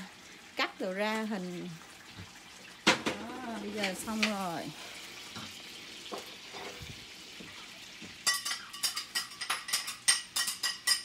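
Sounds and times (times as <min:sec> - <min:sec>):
butter sizzling in a frying pan: 0:00.0 - 0:11.0
metal utensil clinking on pan: 0:08.2 - 0:11.0.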